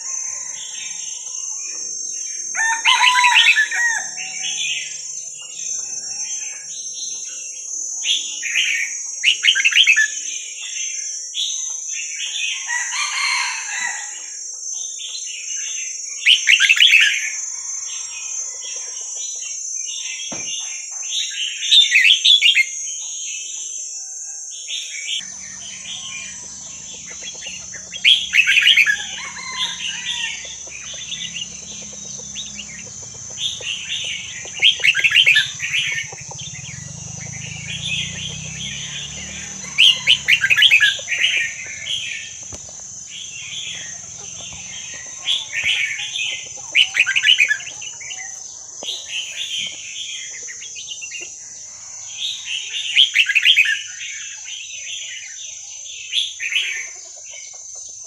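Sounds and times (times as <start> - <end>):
bird chattering song: 24.8 - 58.0.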